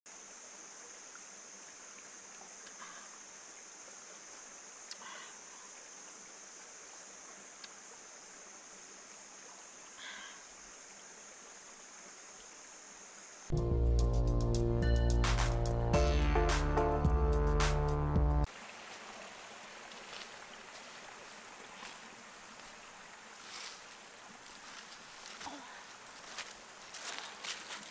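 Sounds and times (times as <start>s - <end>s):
faint hiss: 0.1s - 13.5s, 18.4s - 27.9s
insect drone: 0.1s - 15.9s.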